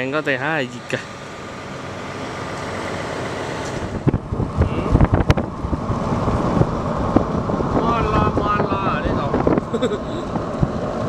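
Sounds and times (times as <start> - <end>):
car road noise: 0.0 - 11.0
wind buffeting microphone: 2.6 - 11.0.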